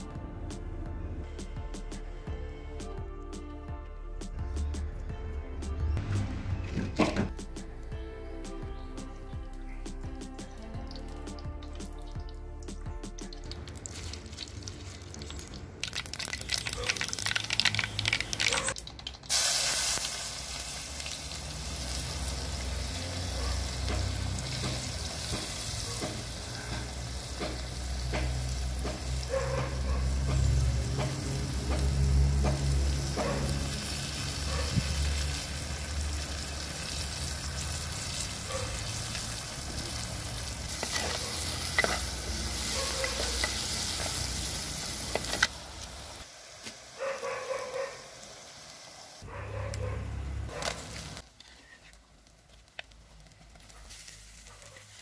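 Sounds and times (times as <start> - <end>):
vegetables sizzling in hot oil: 13.4 - 29.3, 30.1 - 47.0, 47.6 - 49.2, 52.2 - 55.0.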